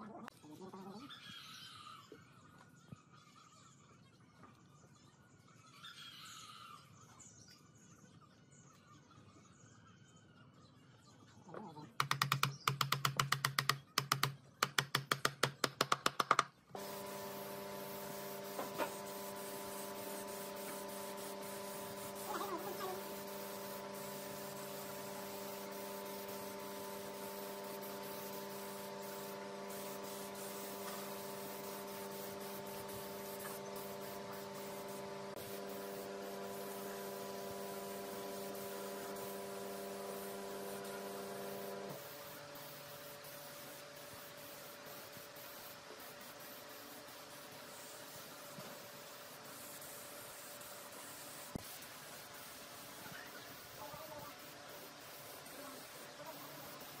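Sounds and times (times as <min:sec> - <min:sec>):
sharp taps: 0:12.0 - 0:16.5
steady machine hum: 0:16.8 - 0:44.8.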